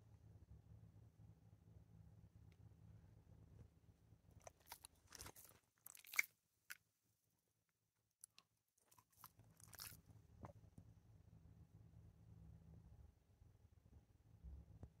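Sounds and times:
dog lip smacking: 4.4s - 6.8s, 8.2s - 10.0s.

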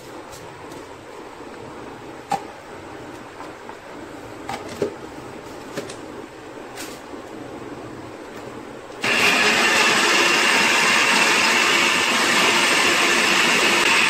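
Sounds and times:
blender motor grinding: 9.0s - 14.0s.

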